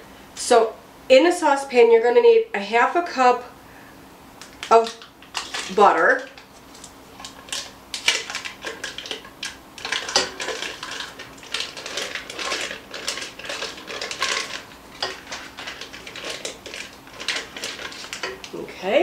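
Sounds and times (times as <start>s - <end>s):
spatula scraping metal saucepan: 4.8s - 6.6s, 7.2s - 18.5s.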